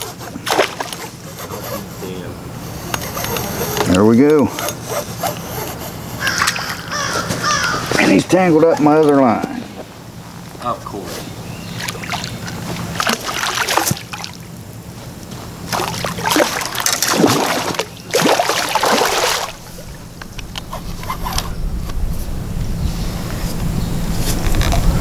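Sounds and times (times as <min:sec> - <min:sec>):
fish thrashing and splashing: 0:00.0 - 0:01.3, 0:11.7 - 0:14.6, 0:15.6 - 0:21.4.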